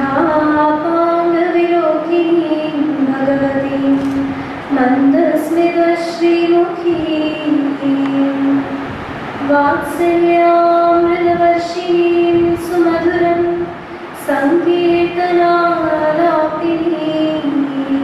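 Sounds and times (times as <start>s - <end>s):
woman singing into a microphone: 0.0s - 18.0s.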